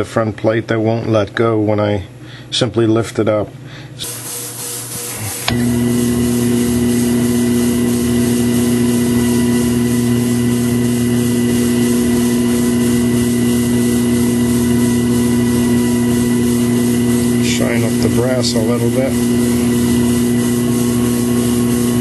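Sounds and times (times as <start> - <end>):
small lathe motor humming: 5.1 - 22.0.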